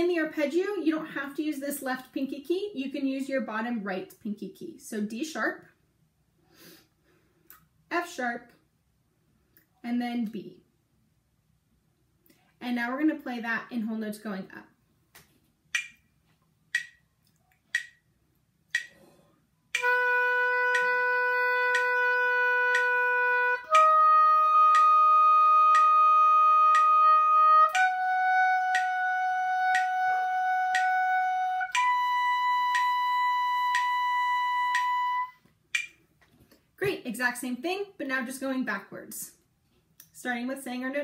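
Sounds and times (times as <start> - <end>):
metronome clicks: 15.7 - 16.1, 16.7 - 18.1, 18.7 - 19.0, 19.7 - 36.0
oboe playing held notes: 19.8 - 35.4.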